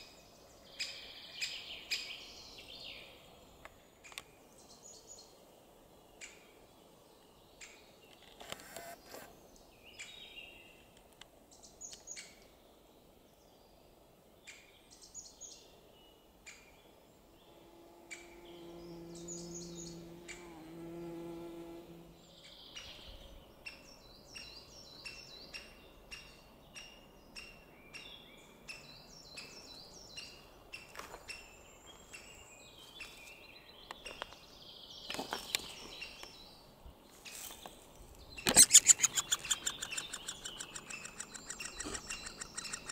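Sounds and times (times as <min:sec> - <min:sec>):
forest birds chirping: 0:00.0 - 0:42.9
low insect buzz: 0:17.2 - 0:22.6
woodpecker nestlings begging calls: 0:38.4 - 0:42.9.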